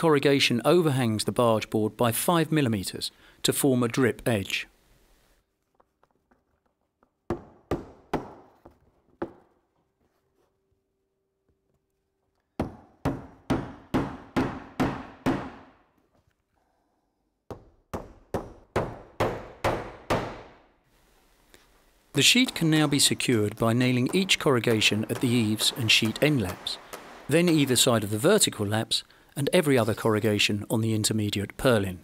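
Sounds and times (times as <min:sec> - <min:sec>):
hammer striking nails into roofing: 0:07.3 - 0:09.6, 0:12.6 - 0:15.8, 0:17.5 - 0:20.6, 0:22.2 - 0:28.4.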